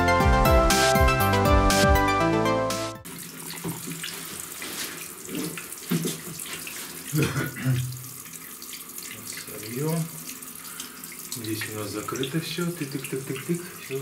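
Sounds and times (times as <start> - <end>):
running water hissing: 3.0 - 14.0.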